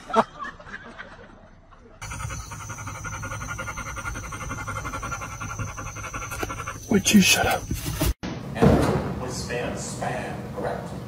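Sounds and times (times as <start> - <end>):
dog panting: 2.0 - 8.2
vehicle cabin hum: 2.0 - 8.2.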